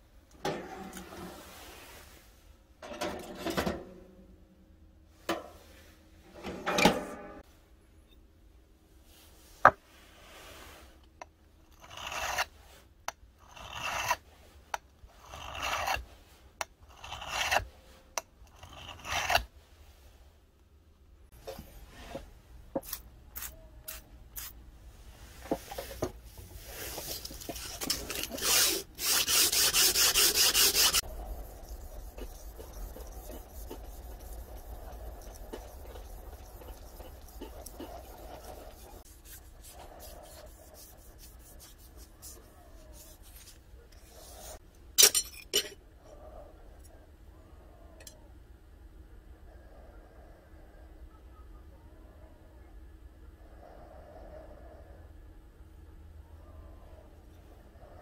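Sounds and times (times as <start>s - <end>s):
knife blade scraping: 11.8s - 12.5s, 15.4s - 16.0s, 17.0s - 17.7s, 18.6s - 19.5s, 26.8s - 43.5s
abrasive block rubbing blade: 26.9s - 43.5s.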